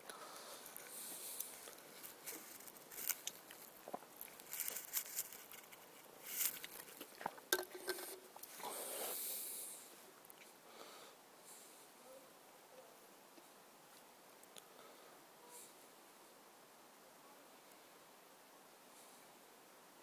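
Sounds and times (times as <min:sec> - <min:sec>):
hiss: 0:08.6 - 0:10.0.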